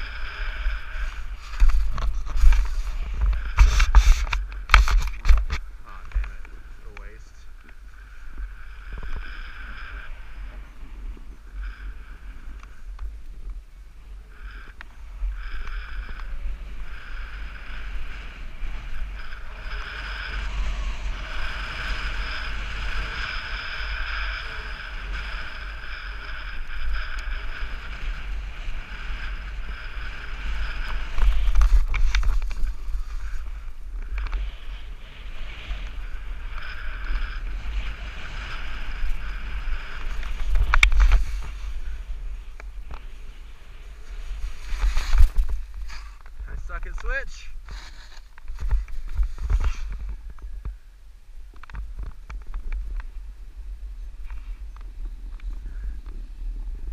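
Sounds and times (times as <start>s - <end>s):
skis scraping across snow: 0.0s - 50.8s
wind buffeting microphone: 0.0s - 56.9s.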